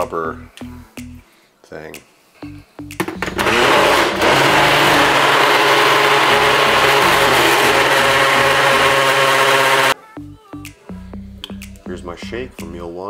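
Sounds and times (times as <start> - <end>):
blender motor running: 3.3 - 10.0.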